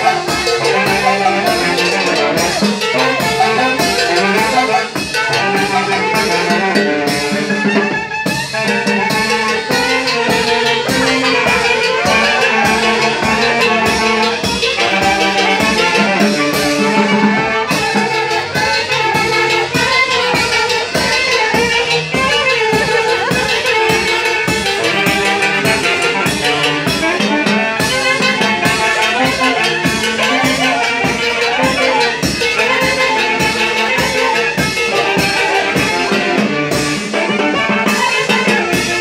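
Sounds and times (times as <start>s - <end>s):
festive dance music: 0.0s - 39.0s.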